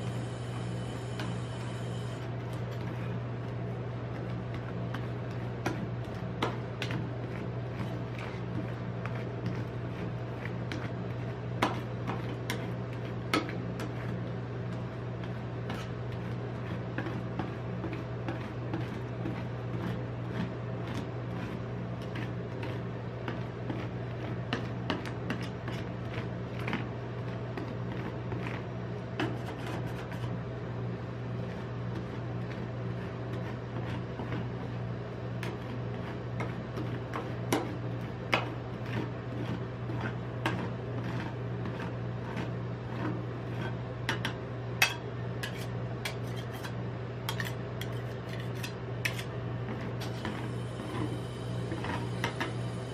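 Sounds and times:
steady low hum: 0.0s - 52.9s
metal spatulas scraping on steel: 44.8s - 49.3s.

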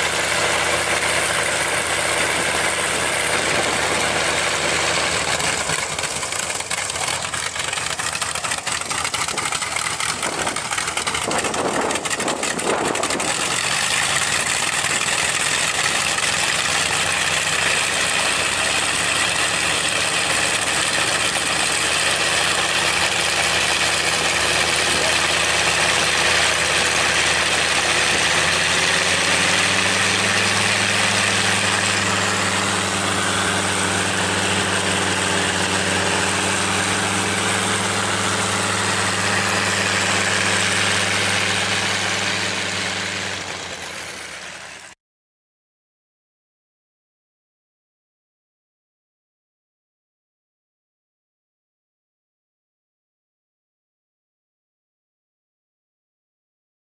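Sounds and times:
radial aero engine running: 0.0s - 45.0s.

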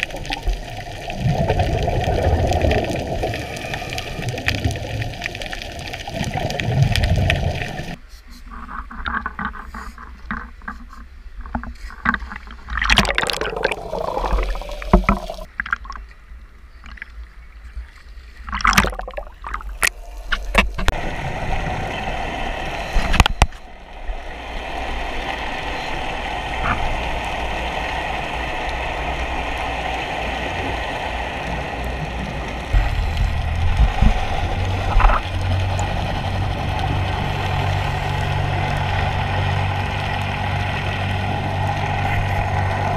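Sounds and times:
water splashing against camera: 0.0s - 16.2s, 18.4s - 21.1s, 21.9s - 23.7s, 24.4s - 42.9s
low steady hum: 12.6s - 42.9s
muffled underwater noise: 20.1s - 42.9s.

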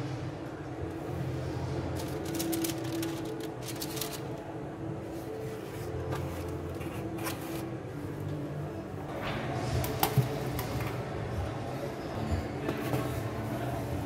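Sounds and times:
paper rustling and crinkling: 2.0s - 4.5s.

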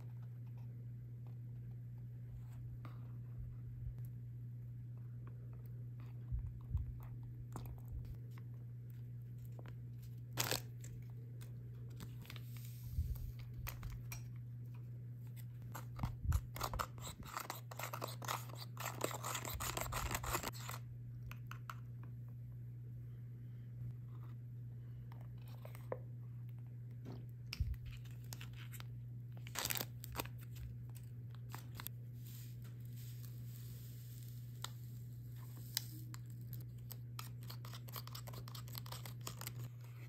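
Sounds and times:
plastic packet crinkling and tearing: 10.3s - 11.0s, 27.9s - 32.4s, 35.5s - 39.8s.

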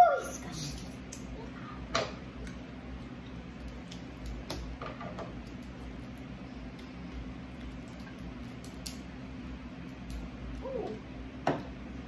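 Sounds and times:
steady low hum: 0.0s - 12.0s
shells cracking and clicking: 7.6s - 9.1s.

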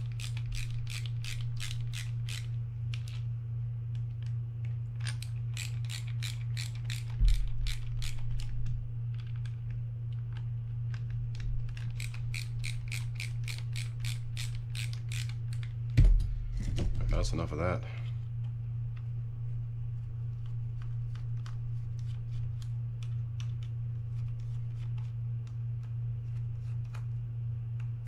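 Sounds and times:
low steady hum: 0.0s - 28.0s
ratcheting screwdriver clicking: 5.0s - 8.5s, 11.7s - 15.7s.

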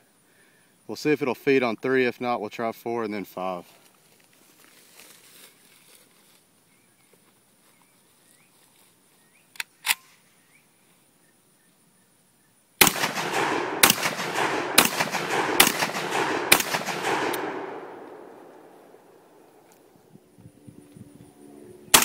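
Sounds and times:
sharp clicks: 12.8s - 18.7s
shotgun shots echoing: 12.8s - 19.7s.

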